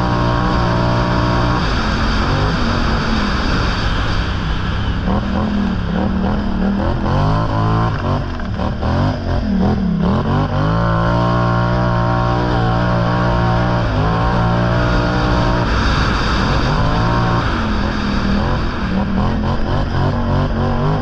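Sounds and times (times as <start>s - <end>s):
vehicle engine revving: 0.0s - 21.0s.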